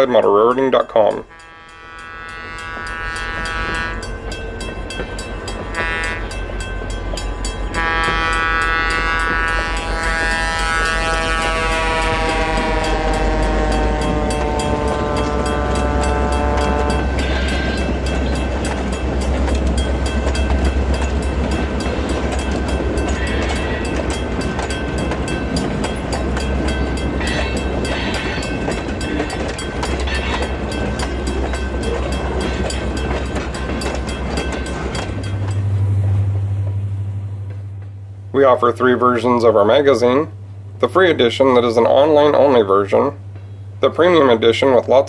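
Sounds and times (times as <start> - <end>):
train wheels clicking: 0.0 - 36.8
model train rumbling: 0.0 - 45.0
model train horn: 1.2 - 4.2, 5.7 - 6.4, 7.7 - 18.0.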